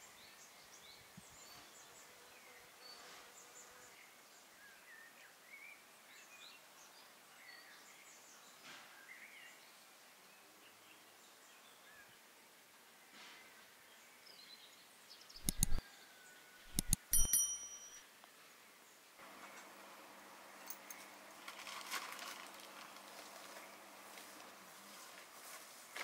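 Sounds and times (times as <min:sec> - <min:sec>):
mouse clicks: 0:15.4 - 0:15.8, 0:16.7 - 0:17.3
bell ding: 0:16.8 - 0:18.0.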